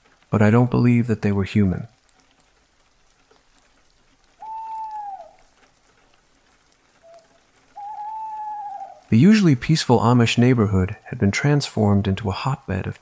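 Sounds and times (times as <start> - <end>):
rain hiss: 0.0 - 13.0
owl hooting: 4.4 - 5.5, 7.0 - 9.1.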